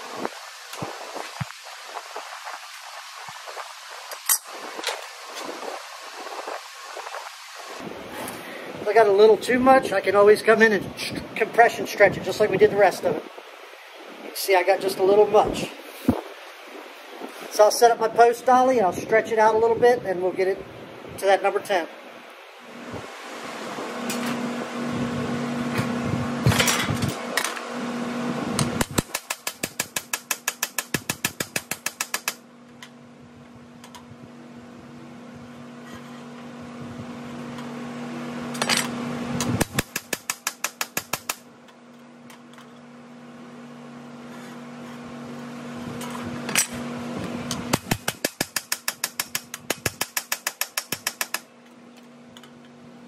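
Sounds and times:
steady hum: 0.0 - 53.0
rapid hammer blows on metal: 28.6 - 32.4, 39.4 - 41.5, 47.5 - 51.5.

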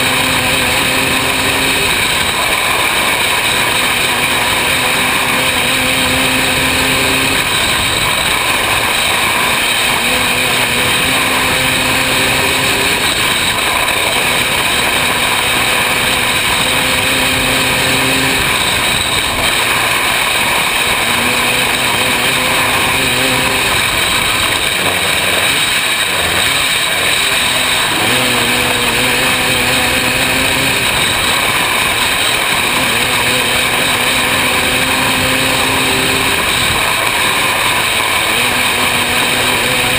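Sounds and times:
loud wind rush: 0.0 - 39.9
racing engine running hard: 0.0 - 39.9.

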